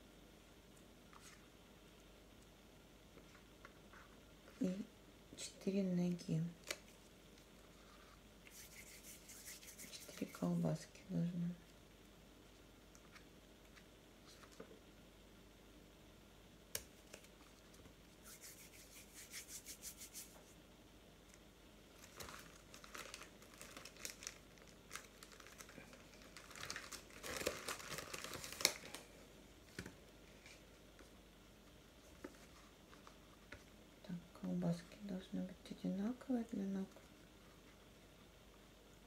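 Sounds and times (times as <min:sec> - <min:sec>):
crinkling and rustling: 0:22.0 - 0:31.1.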